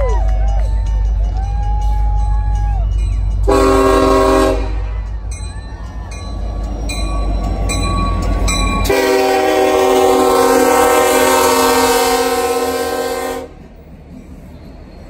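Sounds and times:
diesel locomotive engine rumbling: 0:00.0 - 0:15.0
train air horn chord: 0:03.5 - 0:04.9, 0:08.9 - 0:13.6.

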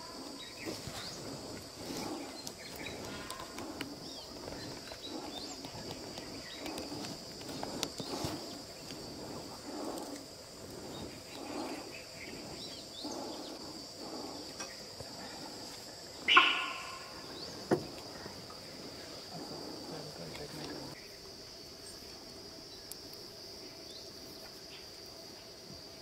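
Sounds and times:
insects droning: 0:00.0 - 0:26.0
short sharp call: 0:16.3 - 0:17.1.

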